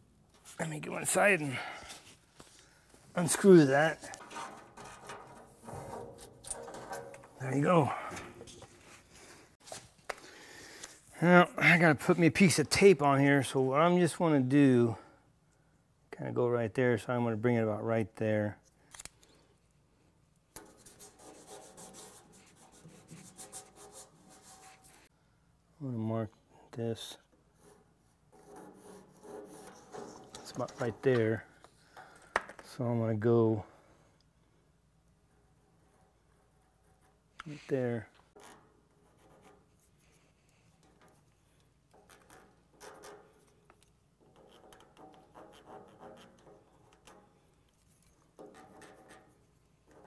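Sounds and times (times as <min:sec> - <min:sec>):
pencil scratching: 0:20.6 - 0:25.1, 0:28.4 - 0:30.6.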